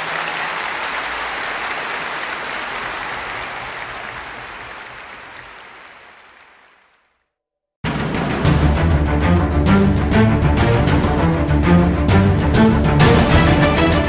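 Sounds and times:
crowd applause: 0.0s - 7.2s.

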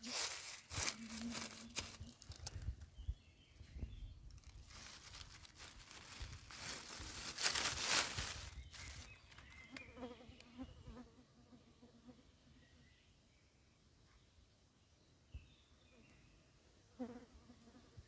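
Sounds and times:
dry leaves rustling and crackling: 0.0s - 2.8s, 4.3s - 9.6s.

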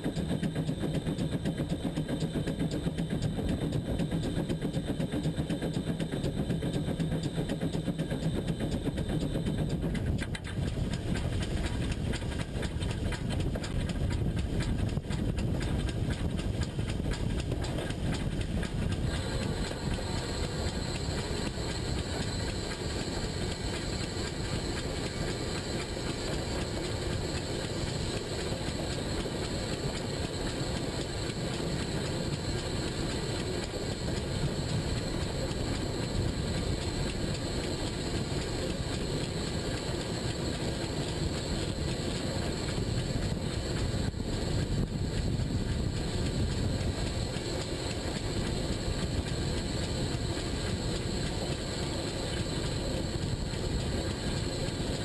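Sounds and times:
locomotive wheels rumbling on rails: 0.0s - 55.0s
steam hiss: 19.1s - 38.8s.

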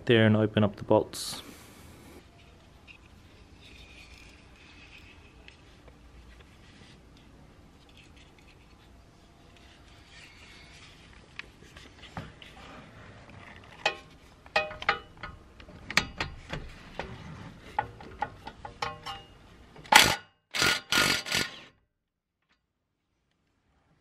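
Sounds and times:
impact wrench hammering: 18.4s - 21.6s.

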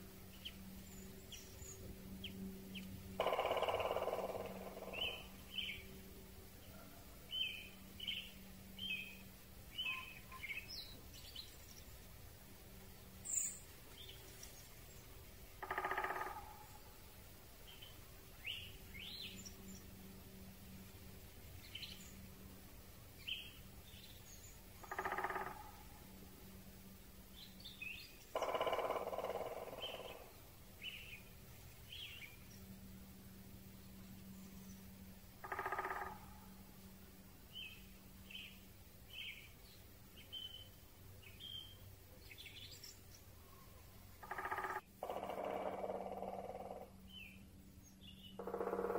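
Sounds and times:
faint steady hiss: 0.0s - 3.2s, 3.8s - 45.0s
small birds chirping: 0.0s - 48.9s
louder lower bird calls: 0.3s - 5.9s, 6.6s - 11.4s, 15.6s - 16.9s, 23.2s - 26.2s, 27.4s - 31.3s, 34.5s - 36.9s, 43.4s - 47.3s, 48.1s - 48.9s.

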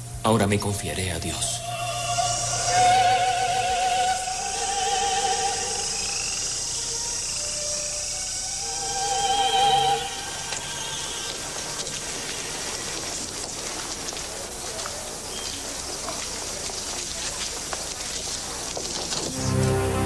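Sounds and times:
hooves clopping on cobblestones: 4.9s - 19.8s
hum of distant voices: 9.6s - 19.0s.

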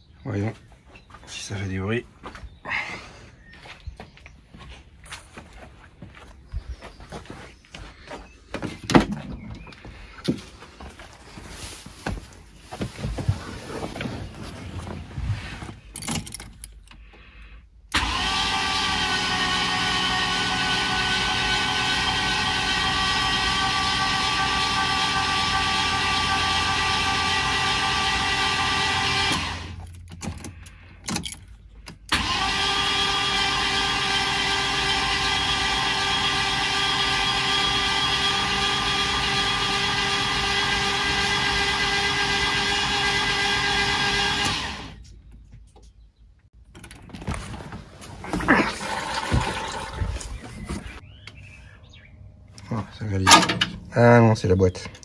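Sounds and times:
engine starter motor whirring: 17.9s - 45.0s, 46.7s - 51.0s, 53.2s - 53.9s.

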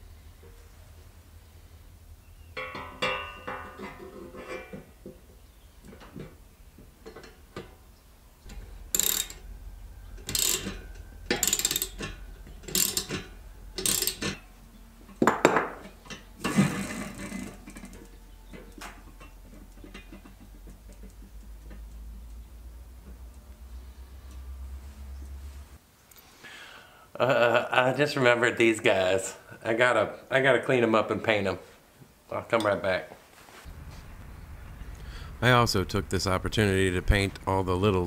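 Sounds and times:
metal scrape: 0.4s - 7.8s, 8.4s - 20.6s
metal knock: 2.6s - 5.2s
ratchet wrench strokes: 8.5s - 9.4s, 10.2s - 14.4s.

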